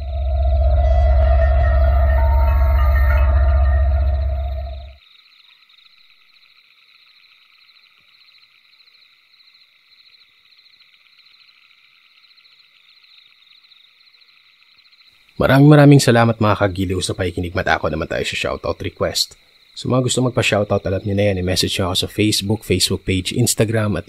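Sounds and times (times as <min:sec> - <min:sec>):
low dark music drone: 0:00.0 - 0:05.0
frogs and insects chirring: 0:00.0 - 0:24.0.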